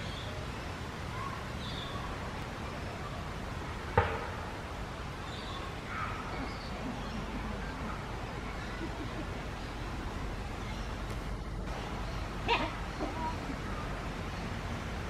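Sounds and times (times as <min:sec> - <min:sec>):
low outdoor rumble: 0:00.0 - 0:15.0
sharp knock: 0:04.0 - 0:04.5.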